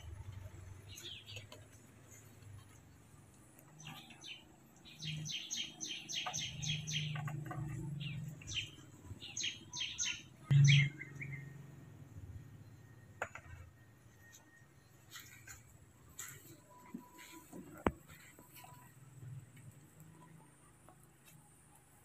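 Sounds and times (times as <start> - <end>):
birds chirping: 0.0 - 19.3.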